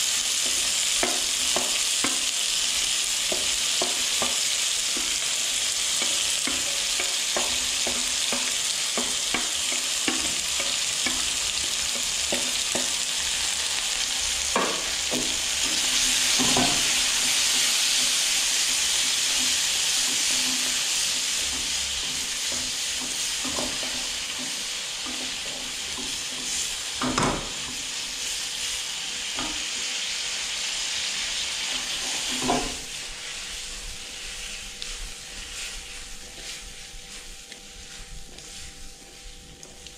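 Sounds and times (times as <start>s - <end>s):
food sizzling in wok: 0.0s - 39.9s
utensil scraping and knocking pan: 3.3s - 13.0s.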